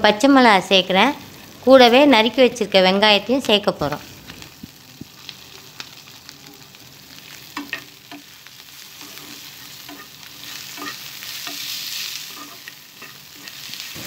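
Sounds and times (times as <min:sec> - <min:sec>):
onions sizzling in hot oil: 0:00.0 - 0:14.0
spoon knocking and scraping pan: 0:07.5 - 0:14.0.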